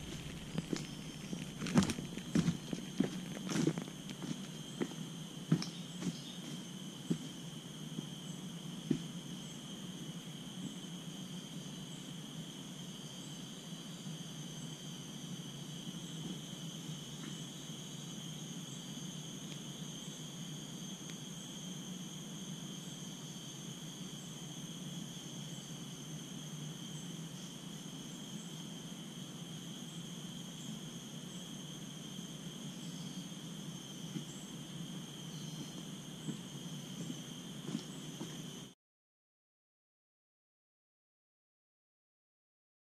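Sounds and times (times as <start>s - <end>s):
footsteps on leaf litter: 0.0s - 4.6s
low steady hum: 0.0s - 29.2s
insect chorus drone: 0.0s - 38.8s.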